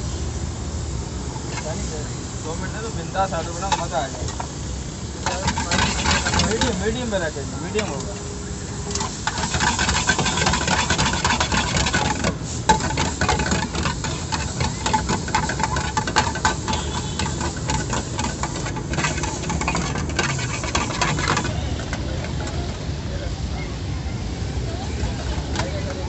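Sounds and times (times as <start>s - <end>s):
metal spatula scraping frying pan: 5.2s - 8.1s, 8.9s - 22.4s.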